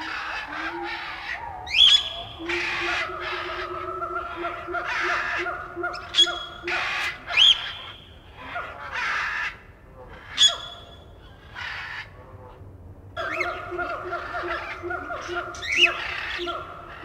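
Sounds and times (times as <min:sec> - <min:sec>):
steady pulsing hum: 0:00.0 - 0:08.5
bird-like animal cries: 0:00.0 - 0:12.2.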